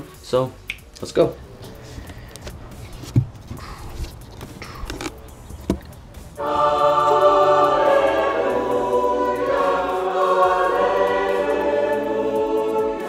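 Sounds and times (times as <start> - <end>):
music with choral singing: 5.3 - 13.0.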